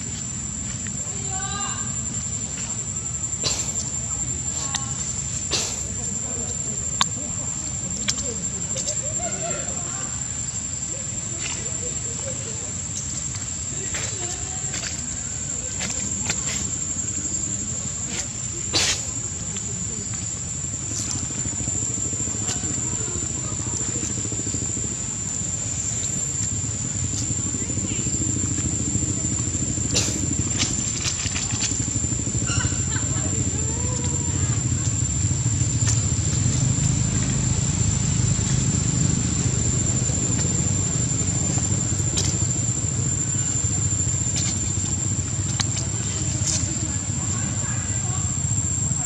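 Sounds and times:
high-pitched insect drone: 0.0s - 49.0s
steady low rumble: 0.0s - 49.0s
faint clicks: 8.0s - 9.0s, 39.9s - 46.9s.

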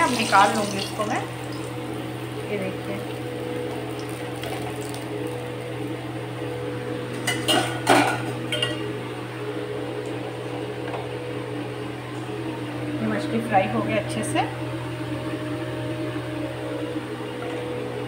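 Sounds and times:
steady low hum: 0.0s - 18.0s
spatula clattering on cookware: 7.2s - 8.8s.

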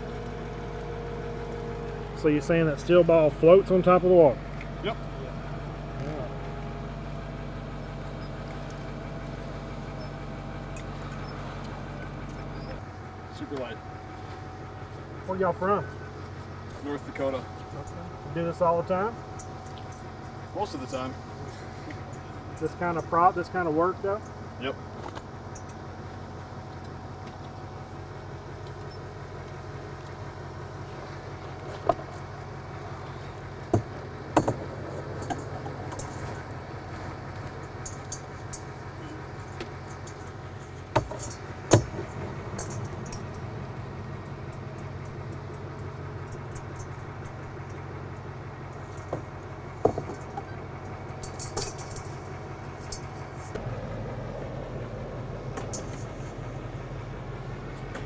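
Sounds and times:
low engine hum: 0.0s - 58.0s
snap hook and chain clinking: 41.0s - 47.8s, 51.2s - 53.6s
small jingling clinks: 42.1s - 47.8s, 51.2s - 53.4s.

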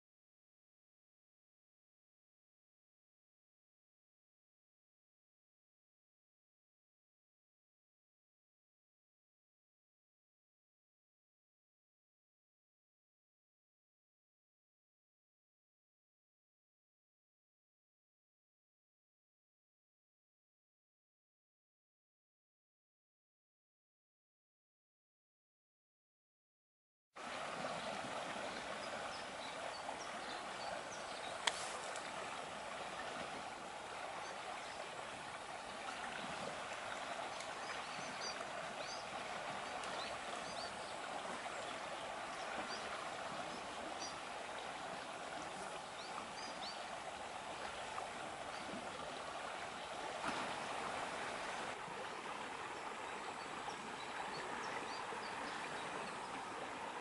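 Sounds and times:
river water rushing: 27.2s - 57.0s.

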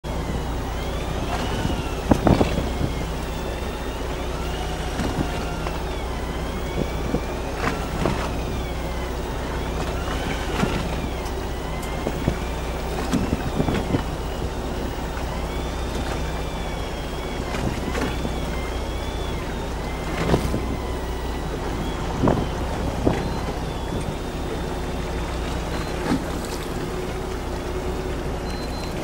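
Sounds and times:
boat engine idling: 0.0s - 29.0s
faint wavering whine: 0.1s - 29.0s.

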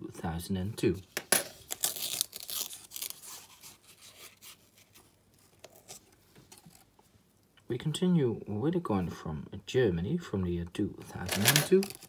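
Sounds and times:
paper wrapper tearing: 1.5s - 6.8s, 11.2s - 12.0s.

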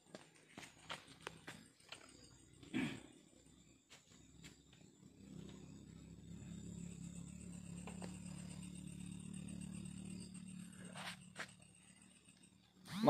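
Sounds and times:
low motor hum: 0.0s - 13.0s
thin high steady tone: 3.2s - 13.0s.

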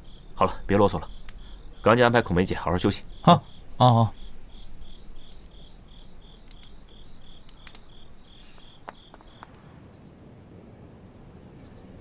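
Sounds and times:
crickets chirping: 0.0s - 10.4s
faint clicks: 1.0s - 1.6s, 5.2s - 9.7s.

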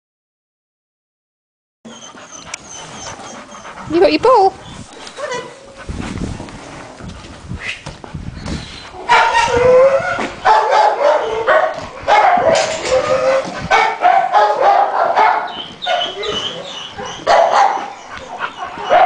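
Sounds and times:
dog barking and whining: 9.0s - 19.0s.

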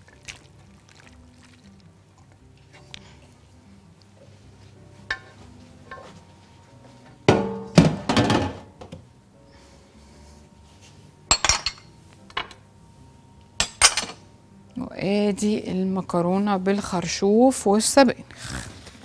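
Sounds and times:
dishes and cutlery clinking: 5.1s - 6.2s, 11.3s - 12.6s, 13.6s - 14.2s.

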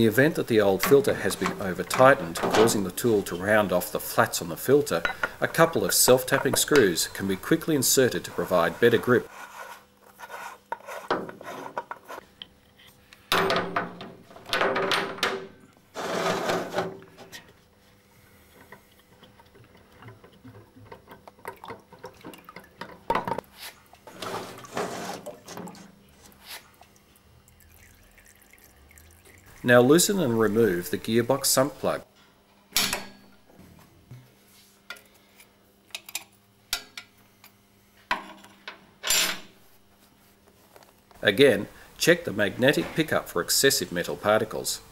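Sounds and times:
metal scraping and rattling: 16.0s - 17.4s, 24.1s - 25.8s.

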